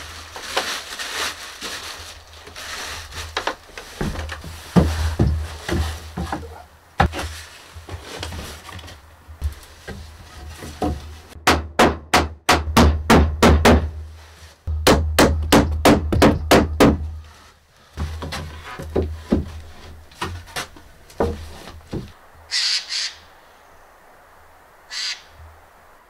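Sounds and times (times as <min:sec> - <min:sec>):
hammer driving nails into wood: 0:14.8 - 0:17.0.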